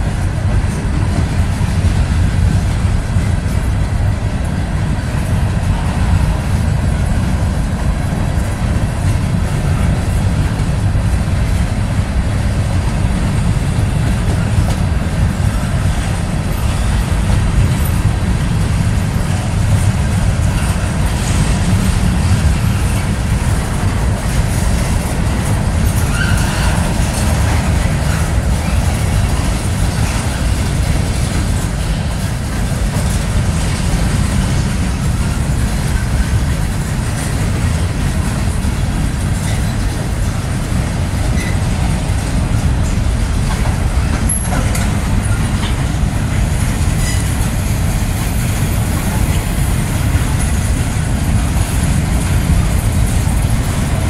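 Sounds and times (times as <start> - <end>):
freight train rolling past: 0.0 - 54.0.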